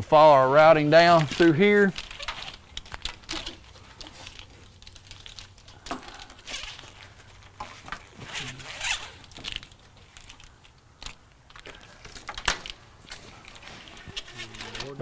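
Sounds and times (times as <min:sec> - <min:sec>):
plastic loom rustling and scraping: 0:11.6 - 0:15.0.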